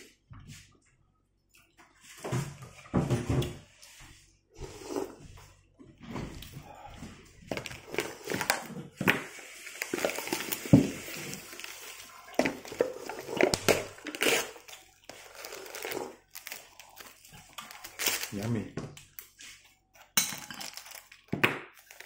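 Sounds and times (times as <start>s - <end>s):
person chewing: 11.9s - 18.3s.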